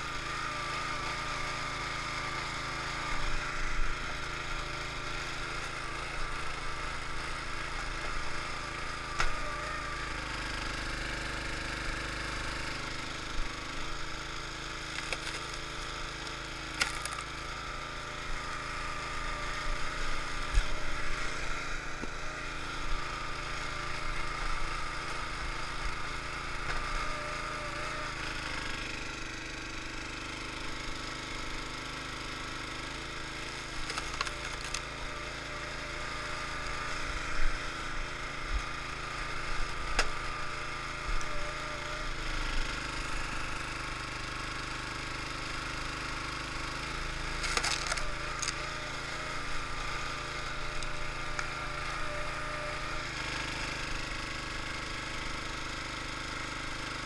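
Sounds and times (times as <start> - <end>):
small gas engine running: 0.0 - 57.0
wood cracking and splintering: 14.6 - 17.5, 32.8 - 35.4, 47.3 - 48.8.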